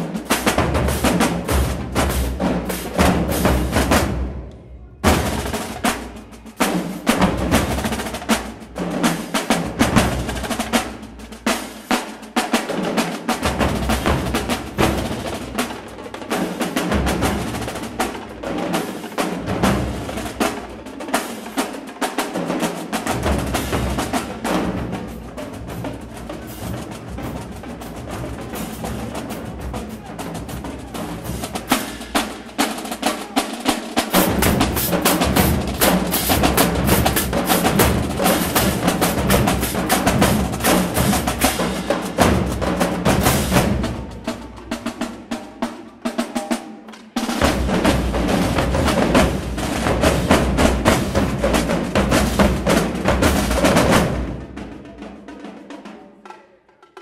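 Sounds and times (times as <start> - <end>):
snare drums playing cadence: 31.2 - 44.1.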